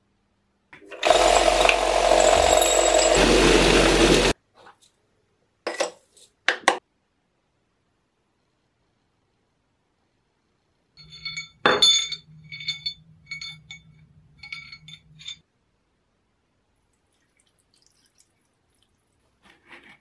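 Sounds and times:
light metal clinks: 11.0s - 15.4s.

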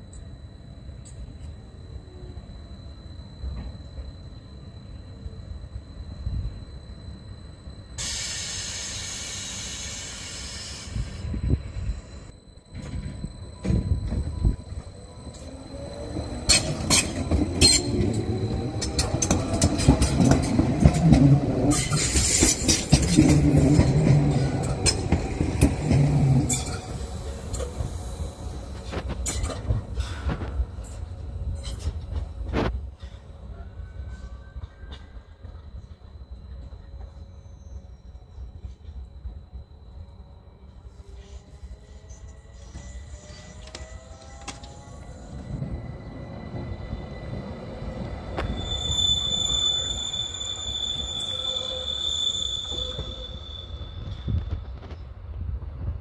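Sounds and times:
train low hum: 0.0s - 56.0s
high-pitched wheel squeal: 13.4s - 27.0s, 42.0s - 54.8s
train wheels clicking over rail joints: 15.3s - 28.0s.

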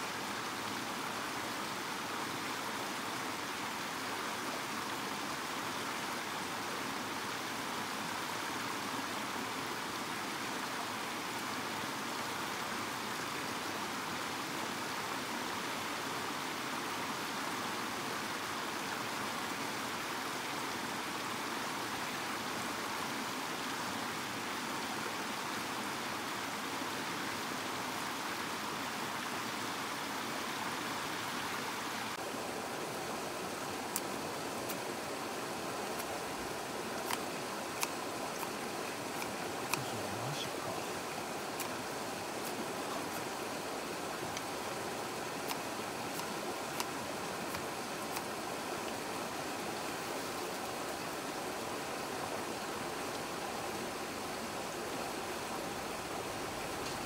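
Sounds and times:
stream rushing over stones: 0.0s - 57.0s.

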